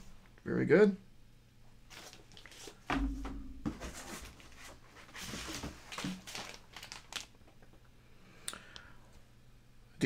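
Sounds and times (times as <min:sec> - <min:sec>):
plastic sleeves rustling: 0:01.9 - 0:07.8.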